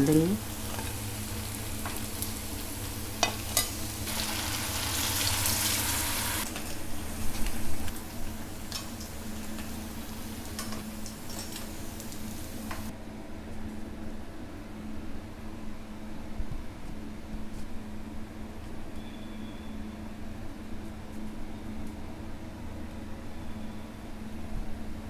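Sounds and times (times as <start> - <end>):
food sizzling in hot oil: 0.0 - 12.9.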